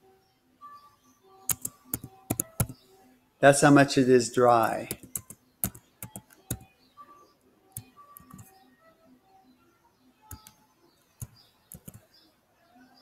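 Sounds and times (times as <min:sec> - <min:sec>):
faint background music: 0:00.0 - 0:13.0
computer keyboard clicks: 0:01.5 - 0:02.8, 0:04.6 - 0:06.7, 0:07.7 - 0:08.5, 0:10.3 - 0:10.6, 0:11.2 - 0:12.0.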